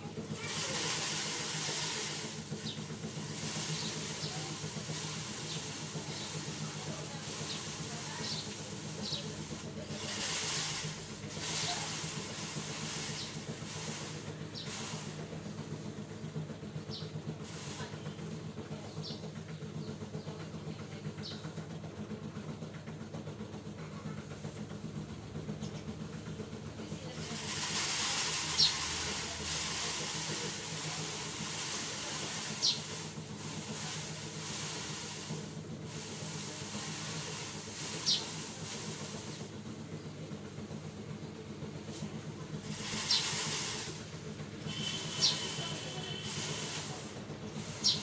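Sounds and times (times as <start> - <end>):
steady hiss: 0.0 - 16.3, 27.0 - 39.9, 41.7 - 48.0
low mechanical hum: 0.0 - 48.0.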